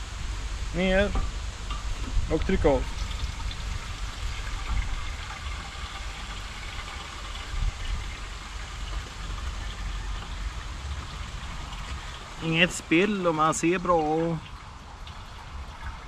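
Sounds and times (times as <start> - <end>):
fuel trickling into tank: 1.3 - 16.0.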